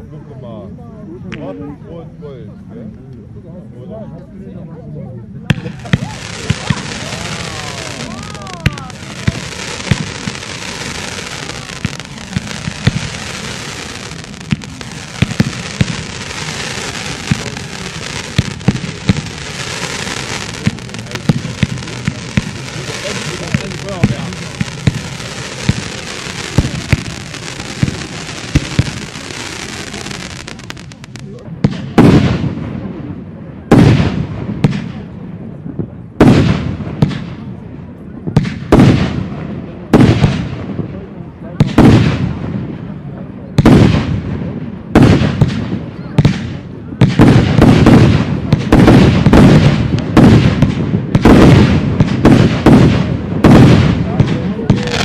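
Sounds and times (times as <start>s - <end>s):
fireworks hissing crackle: 5.5s - 32.6s, 45.0s - 55.0s
firework bangs: 5.5s - 55.0s
rolling echo: 5.5s - 55.0s.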